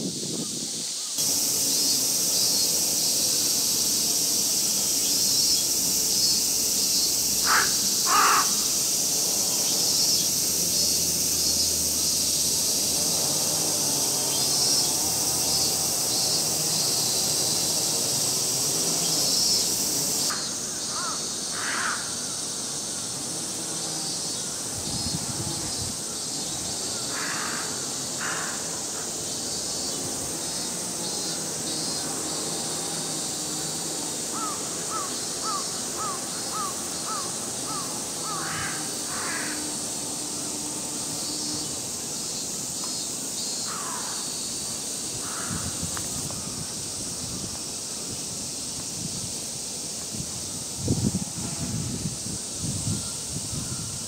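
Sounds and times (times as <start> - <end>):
cicadas chorus: 0.0 - 54.0
crows cawing: 7.4 - 8.7, 20.9 - 22.2, 27.1 - 28.7, 34.4 - 39.6, 43.7 - 44.2, 45.2 - 45.7.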